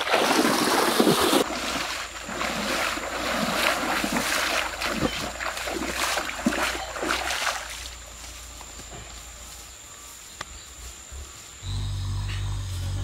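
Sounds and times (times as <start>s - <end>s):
bare feet splashing in stream water: 0.0s - 8.2s.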